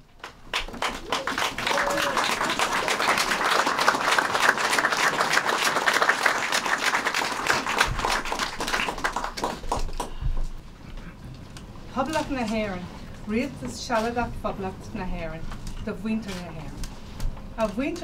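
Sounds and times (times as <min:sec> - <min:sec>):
crowd applause: 0:00.0 - 0:10.2.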